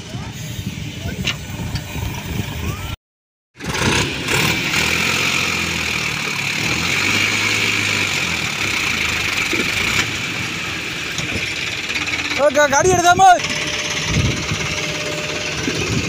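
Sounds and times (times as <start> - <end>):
diesel engines running under load: 0.0 - 3.0, 3.6 - 16.0
steady high whine: 11.6 - 16.0.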